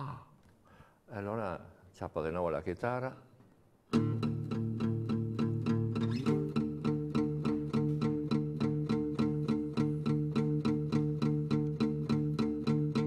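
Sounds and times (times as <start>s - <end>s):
classical guitar strumming: 3.9s - 13.0s.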